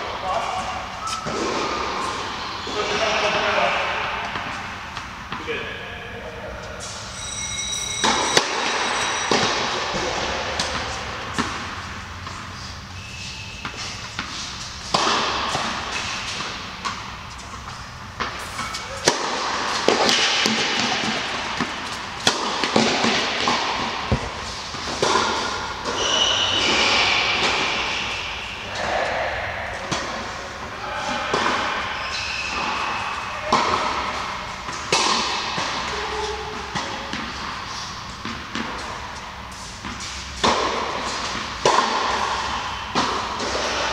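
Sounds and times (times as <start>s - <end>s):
rackets striking tennis ball: 0.0s - 5.5s, 7.9s - 43.9s
shoes squeaking: 0.2s - 5.2s, 6.6s - 29.2s, 30.3s - 43.9s
ball bouncing: 13.6s - 27.8s.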